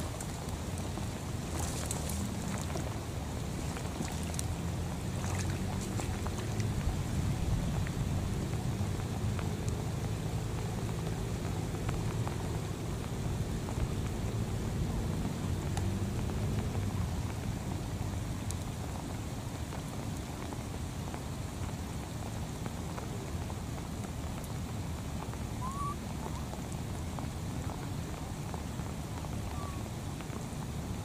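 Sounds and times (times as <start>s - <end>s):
low rumble: 0.0s - 19.2s
rain pattering on water: 0.0s - 31.0s.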